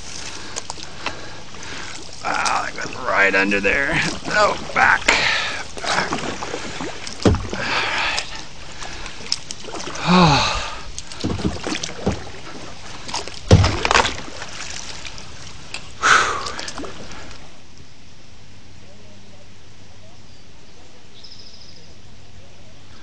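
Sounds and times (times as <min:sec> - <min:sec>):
kayak paddle splashing in water: 0:00.0 - 0:17.6
sharp knocks: 0:07.2 - 0:07.6, 0:13.5 - 0:14.2.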